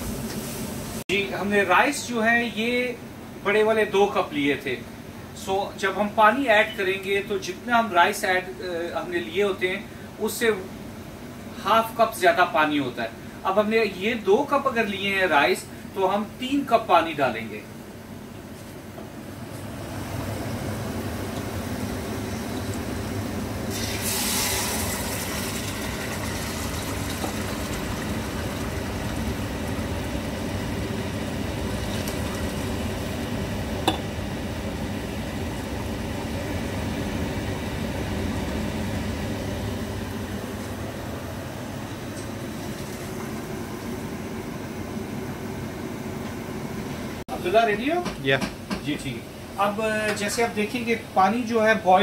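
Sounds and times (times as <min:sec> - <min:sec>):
steady hum: 0:00.0 - 0:51.9
water pouring: 0:23.7 - 0:30.1, 0:31.3 - 0:33.1.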